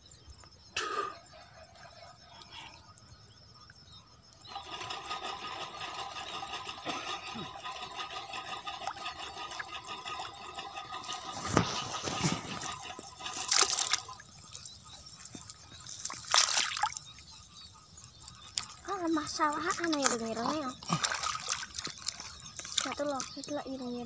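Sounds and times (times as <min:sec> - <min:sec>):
small engine running: 0:04.4 - 0:14.4
splashes in muddy water: 0:11.0 - 0:17.0, 0:18.6 - 0:23.6.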